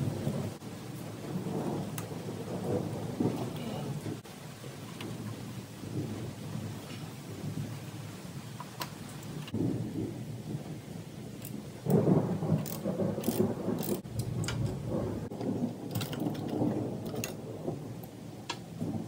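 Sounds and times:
socket ratchet clicks: 12.6s - 14.0s.

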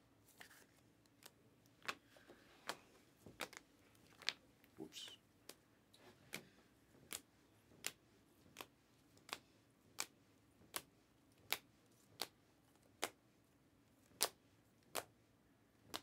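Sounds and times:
trading cards snapping: 3.4s - 3.6s.

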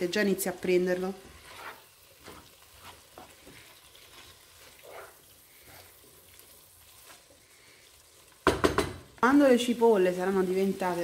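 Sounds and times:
onions sizzling in a frying pan: 0.0s - 11.0s
wooden spoon scraping a pan: 0.6s - 7.7s.

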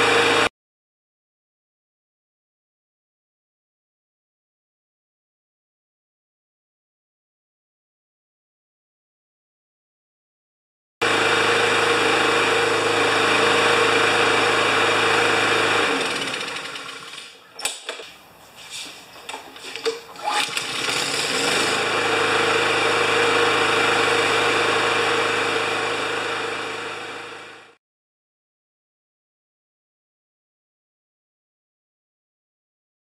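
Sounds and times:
push mower engine running: 0.0s - 0.5s, 11.0s - 18.0s, 19.3s - 27.8s.

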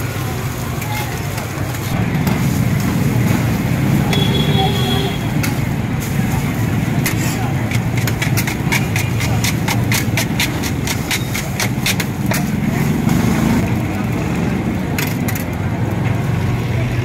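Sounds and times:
metal spatula scraping on griddle: 1.1s - 12.9s.

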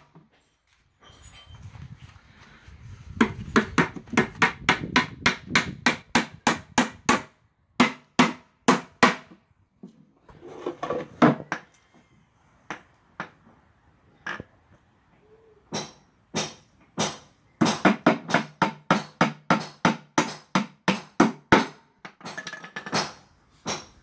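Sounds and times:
hammer striking nails into wood: 3.2s - 9.4s, 15.7s - 24.0s.

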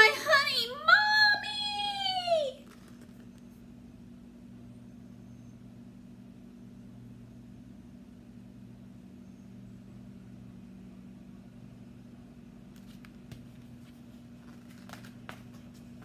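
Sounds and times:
steady low hum: 0.0s - 16.0s
book clicks and paper rustles: 2.6s - 3.5s, 12.7s - 16.0s.

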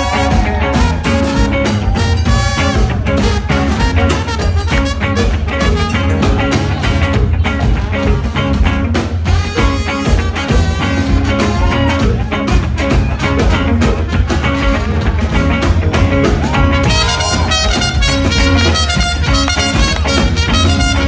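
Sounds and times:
funk brass band playing: 0.0s - 21.0s
bright piercing horns: 16.8s - 21.0s.

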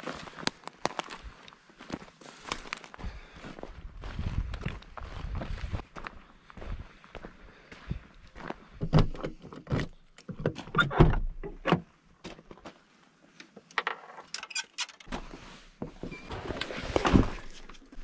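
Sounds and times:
footsteps on gravel: 0.0s - 8.8s
van side door opening: 10.4s - 11.8s.

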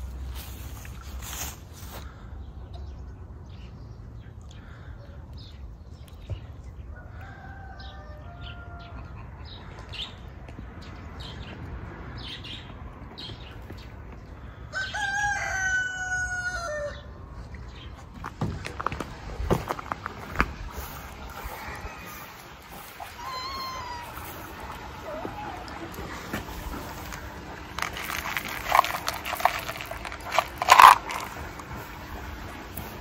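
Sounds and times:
rooster crowing: 6.9s - 9.1s, 14.7s - 17.1s
distant rooster crowing: 6.9s - 9.4s, 14.7s - 17.2s, 21.3s - 23.6s.

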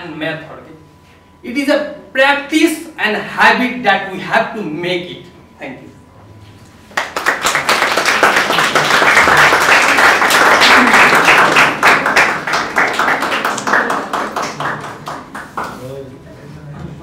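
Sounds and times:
audience applauding: 6.9s - 15.8s.

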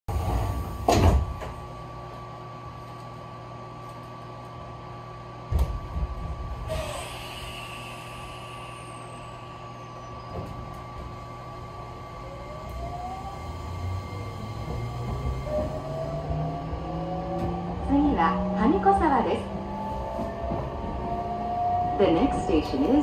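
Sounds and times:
train motors whining: 5.9s - 23.0s
air brakes hissing: 6.7s - 10.3s.

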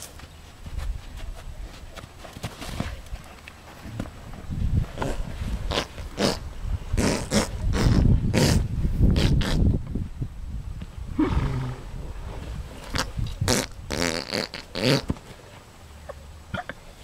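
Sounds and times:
horse passing gas: 4.9s - 9.7s, 11.1s - 15.2s.

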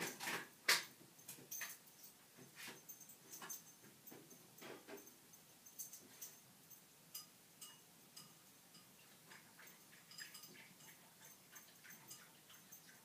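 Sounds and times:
faint light ticks and clicks: 0.7s - 13.0s.

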